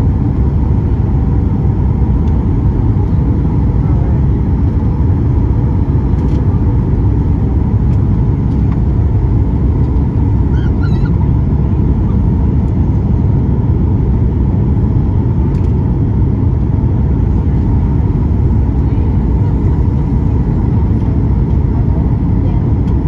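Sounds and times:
airliner cabin rumble: 0.0s - 23.0s
wavering squeak: 10.5s - 11.2s.

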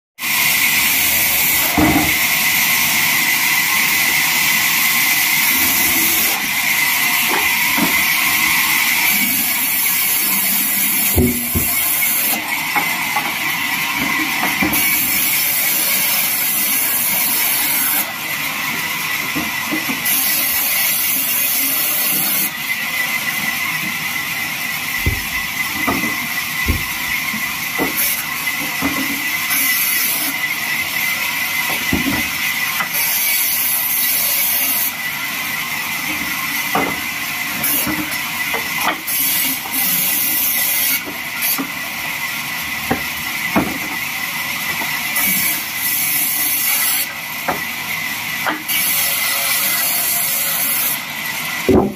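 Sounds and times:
band saw cutting wood: 0.2s - 51.9s
dull knocks: 25.0s - 27.1s.

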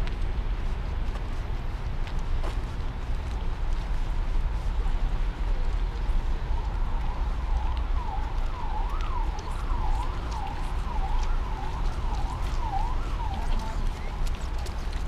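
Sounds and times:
steady low rumble: 0.0s - 15.0s
emergency siren rising and falling: 6.5s - 14.5s.

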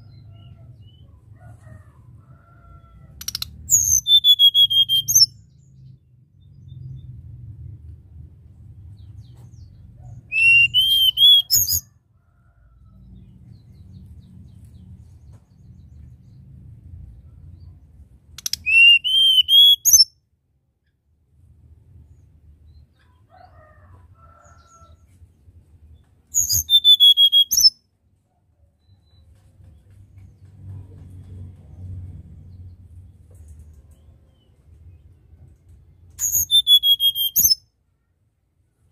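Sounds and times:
bird whistling song: 3.2s - 5.4s, 10.3s - 11.8s, 18.4s - 20.1s, 26.3s - 27.8s, 36.2s - 37.6s
low rumble: 5.6s - 10.3s.

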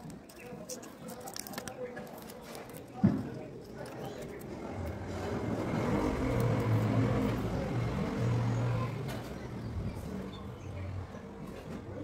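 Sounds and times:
vehicle engine passing by: 4.8s - 11.0s.

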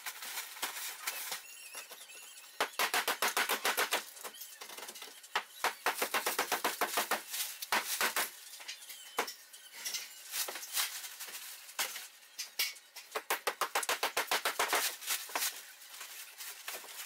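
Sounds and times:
plastic bag crinkling and rustling: 10.2s - 12.2s.

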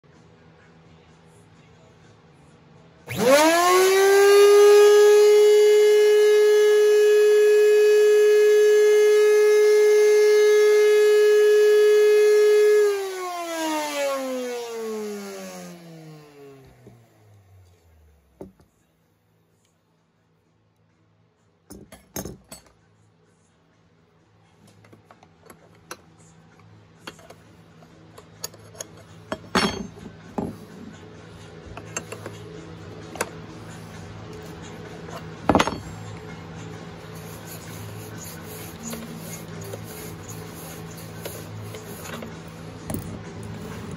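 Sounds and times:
router high whine spinning down: 3.1s - 18.3s
wrench clinks and knocks: 28.2s - 30.5s.

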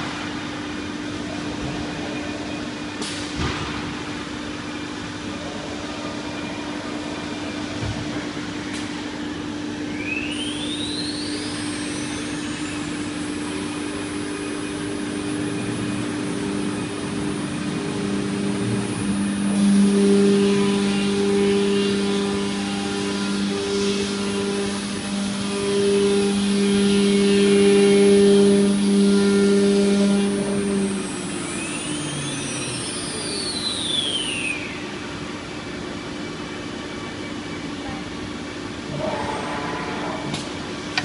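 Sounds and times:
spindle whine rising: 0.0s - 37.8s
machine hum: 0.0s - 41.0s
router cutting tones: 15.0s - 34.1s.

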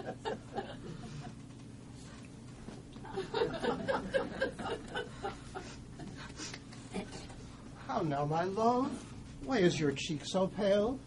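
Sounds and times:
light chuckling: 3.0s - 7.4s.

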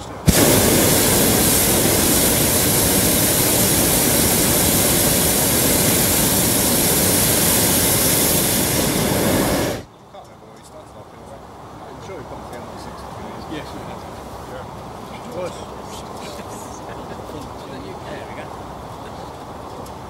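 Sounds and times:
propane burner firing: 0.0s - 9.9s.

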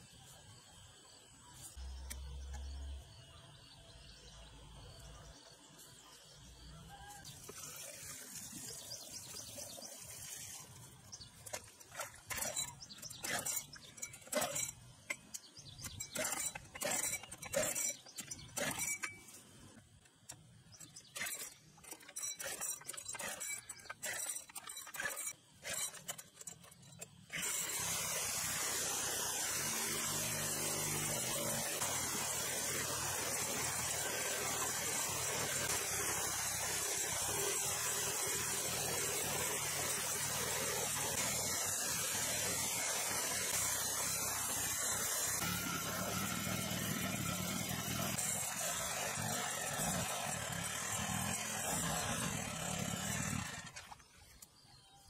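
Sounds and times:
water gushing from pipe: 7.2s - 14.8s, 27.3s - 54.1s.

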